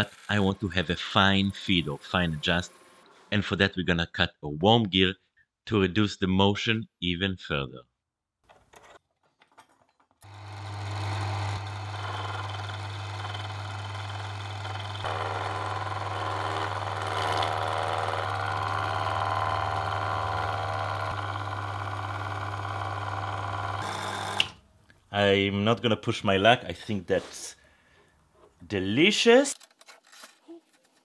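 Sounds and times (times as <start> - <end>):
lathe motor humming: 10.2 - 24.5
gear cutting noise: 10.2 - 24.6.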